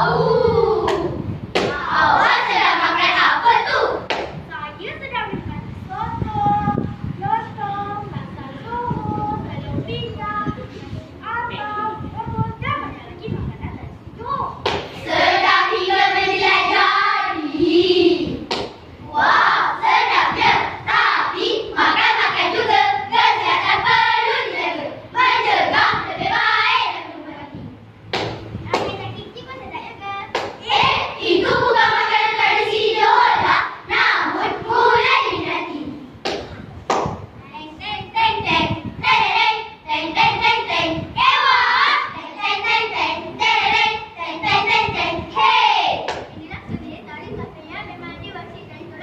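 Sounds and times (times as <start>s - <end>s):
children chanting in unison: 0.0s - 4.1s, 15.0s - 18.4s, 19.1s - 27.5s, 30.6s - 36.0s, 37.8s - 46.2s.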